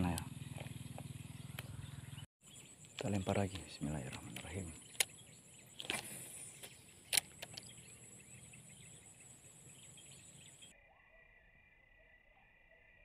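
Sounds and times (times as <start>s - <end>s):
frogs chirping: 0.0s - 13.0s
sharp click: 2.8s - 5.1s, 5.8s - 7.8s.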